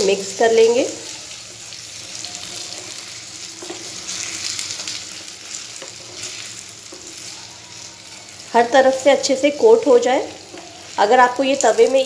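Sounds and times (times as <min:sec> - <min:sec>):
fruit sizzling in sugar syrup: 0:00.0 - 0:12.0
spatula scraping pan: 0:02.2 - 0:07.8.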